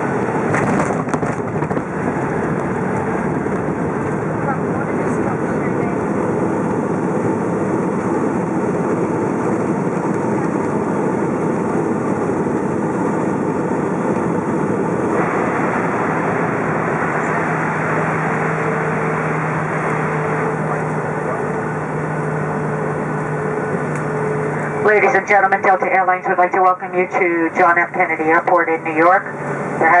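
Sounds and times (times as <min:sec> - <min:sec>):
jet engines and airflow rushing: 0:00.0 - 0:30.0
low steady hum: 0:00.0 - 0:30.0.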